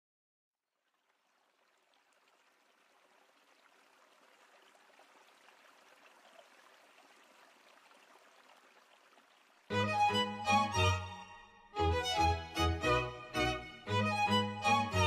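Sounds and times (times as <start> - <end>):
water lapping and splashing: 0.8 - 9.7.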